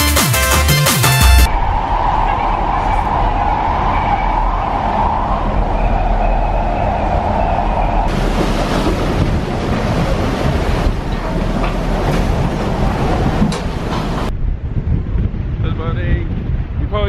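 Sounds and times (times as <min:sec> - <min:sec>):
ferry engines droning: 0:01.2 - 0:14.5
broad rushing noise: 0:01.2 - 0:16.9.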